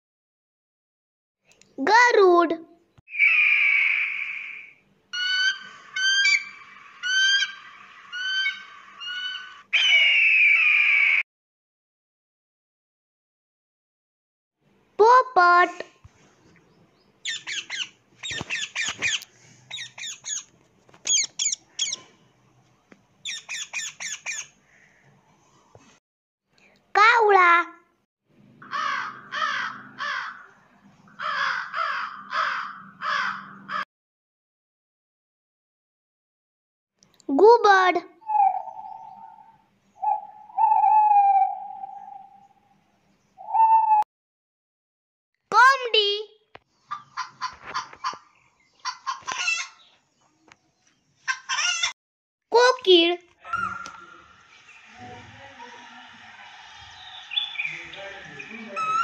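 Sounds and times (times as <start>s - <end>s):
eagle calling: 3.1s - 11.2s, 21.1s - 22.0s
eagle high scream: 3.1s - 11.2s
crow cawing: 3.2s - 11.2s, 28.6s - 33.8s.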